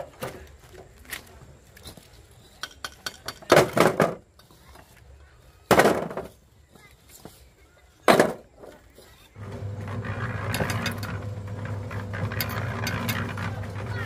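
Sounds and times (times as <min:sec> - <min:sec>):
motor hum with low drone: 0:09.4 - 0:14.0.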